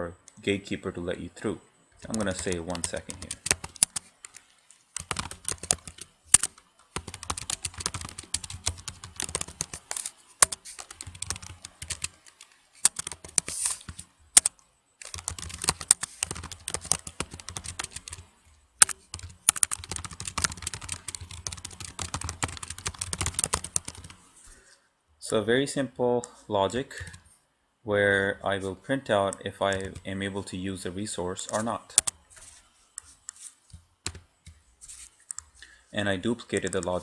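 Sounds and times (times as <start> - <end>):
typing on computer keyboard: 2.0 - 24.2, 29.7 - 30.1, 31.9 - 32.1.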